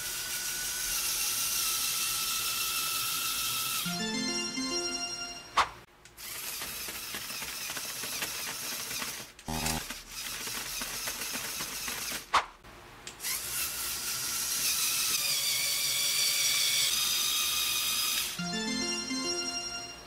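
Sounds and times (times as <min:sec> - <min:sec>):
small electric motors whining: 0:00.0 - 0:03.9, 0:06.2 - 0:12.3, 0:13.2 - 0:18.4.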